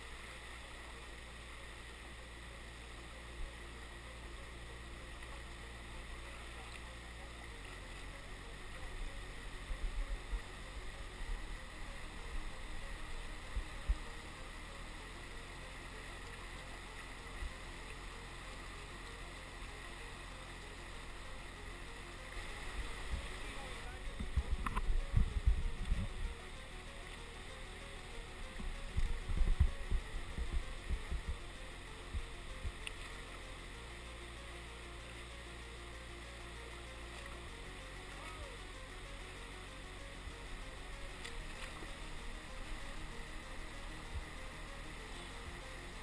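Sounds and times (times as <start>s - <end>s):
low thumps: 24.1s - 26.4s, 28.5s - 31.5s.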